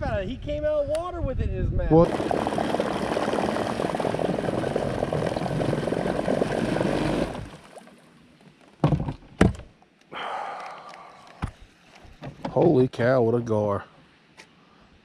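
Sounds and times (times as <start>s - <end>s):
steady rushing noise: 2.0s - 7.5s.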